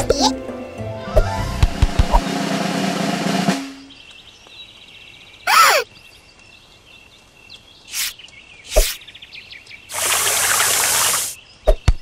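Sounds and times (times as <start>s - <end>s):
birds and insects chirping: 3.7s - 12.0s
garden hose spraying water: 7.9s - 9.0s, 9.9s - 11.4s.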